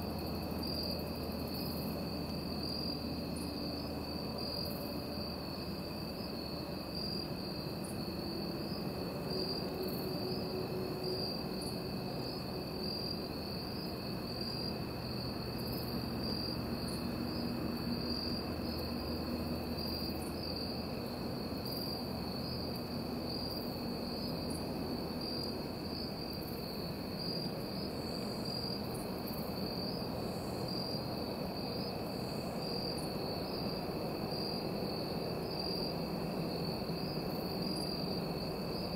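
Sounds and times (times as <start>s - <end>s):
fainter lower cricket trill: 0.0s - 38.9s.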